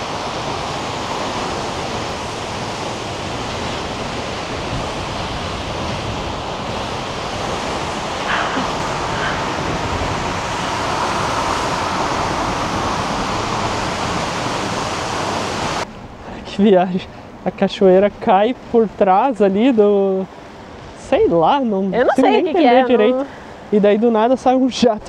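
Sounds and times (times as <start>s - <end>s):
waterfall rushing: 0.0s - 15.8s
wind on microphone: 0.0s - 15.9s.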